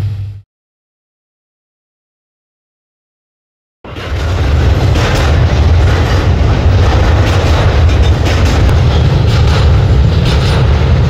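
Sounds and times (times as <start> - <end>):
freight train rumbling past: 0.0 - 0.4, 3.9 - 11.0
wheels clattering on rails: 3.9 - 11.0.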